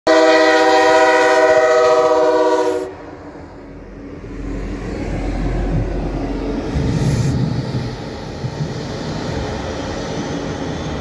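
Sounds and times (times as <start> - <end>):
locomotive air horn chord: 0.1 - 3.5
passing train rumble: 0.1 - 11.0.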